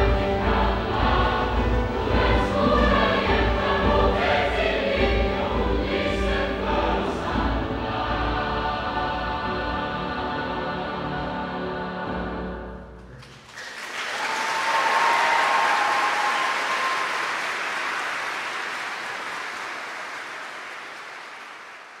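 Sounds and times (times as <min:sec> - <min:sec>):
audience applause: 0:13.2 - 0:22.0.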